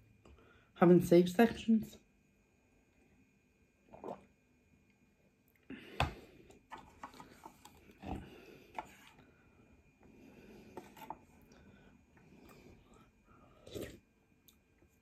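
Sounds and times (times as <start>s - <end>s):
person chewing: 12.2s - 15.0s.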